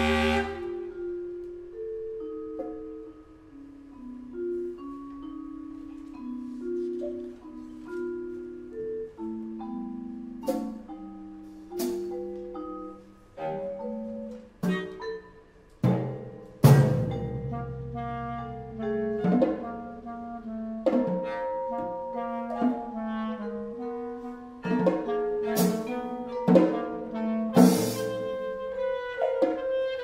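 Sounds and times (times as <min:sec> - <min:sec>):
vibraphone ringing notes: 0:00.0 - 0:30.0
sharp percussion strikes: 0:15.8 - 0:19.8, 0:27.6 - 0:28.6.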